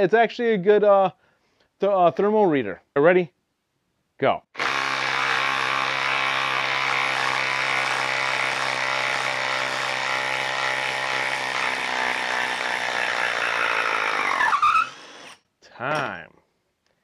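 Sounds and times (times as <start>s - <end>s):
impact driver hammering: 4.6s - 14.4s.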